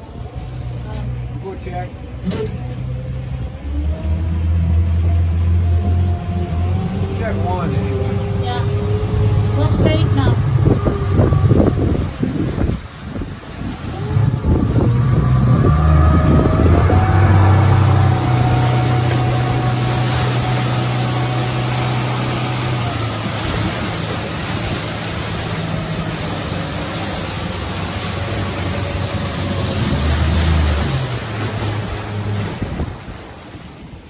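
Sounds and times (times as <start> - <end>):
boat motor running: 0.0 - 34.0
water rushing along hull: 0.0 - 34.0
wind noise: 9.1 - 20.4, 27.6 - 34.0.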